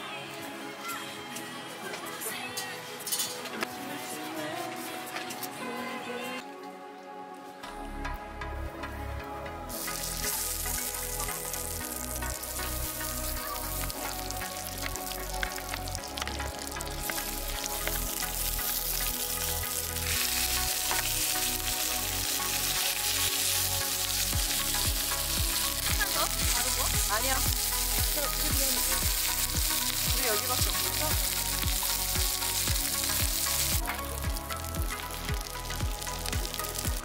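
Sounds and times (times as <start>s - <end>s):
metal tongs: 2.6s - 3.4s
meat sizzling on a griddle: 9.7s - 37.0s.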